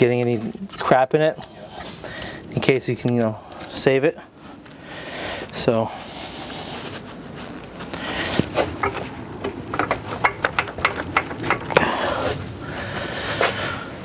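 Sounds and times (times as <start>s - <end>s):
car parts clicking and knocking: 8.4s - 12.0s.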